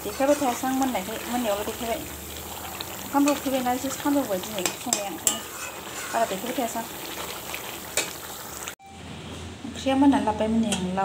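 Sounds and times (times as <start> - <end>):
curry sizzling: 0.0 - 8.8
metal ladle clinking on wok: 4.5 - 6.2.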